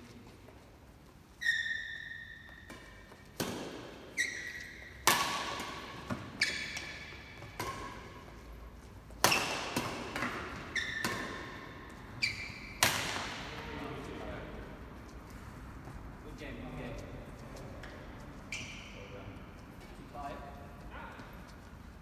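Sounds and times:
shoes squeaking on court floor: 0.0s - 22.0s
rackets striking shuttlecock: 2.4s - 8.4s, 9.1s - 13.7s.

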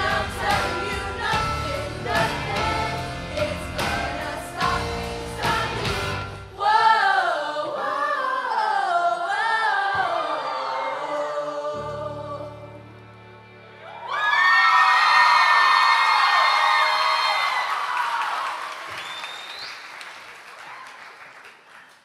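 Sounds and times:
choir singing: 0.0s - 13.2s.

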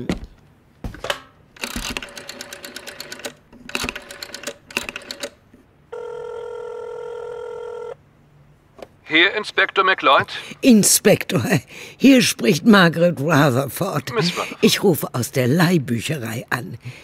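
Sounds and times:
rotary dial whirring and clicking: 1.6s - 5.4s
telephone ringing tone: 5.9s - 8.0s.

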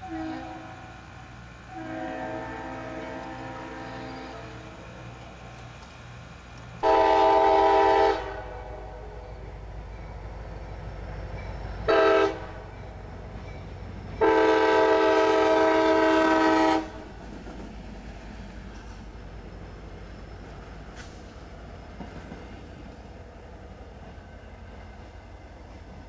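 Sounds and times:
train air horn blasts: 0.0s - 4.9s, 6.8s - 9.5s, 11.9s - 12.7s, 14.2s - 17.1s
low rumble of train: 0.0s - 26.0s.

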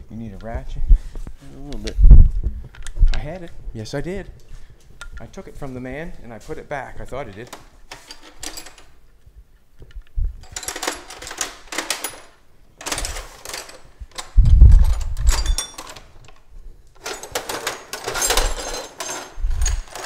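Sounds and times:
metal tools clinking: 7.2s - 9.0s, 10.4s - 16.1s, 17.0s - 20.0s.

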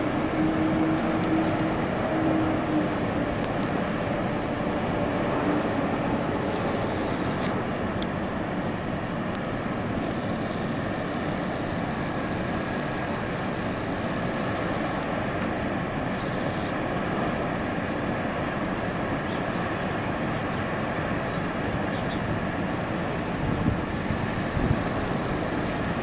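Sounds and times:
waterfall roaring: 0.0s - 26.0s
high-pitched buzz: 6.5s - 7.5s, 10.0s - 15.0s, 16.2s - 16.7s.

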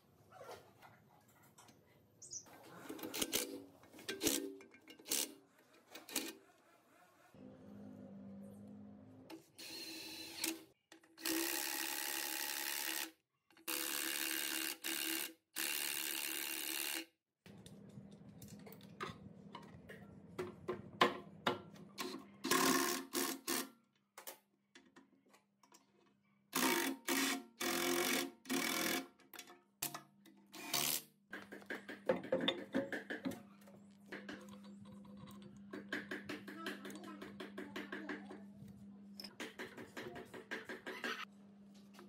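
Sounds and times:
small electric power tool: 9.6s - 17.1s.

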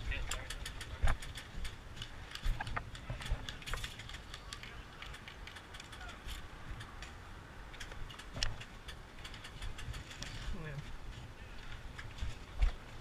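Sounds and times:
low wind rumble on microphone: 0.0s - 13.0s
sharp clicks and snaps: 0.2s - 10.3s.

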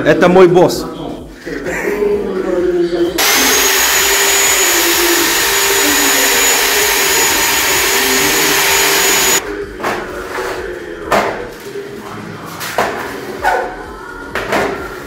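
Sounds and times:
electric paddle mixer whining: 3.2s - 9.4s.

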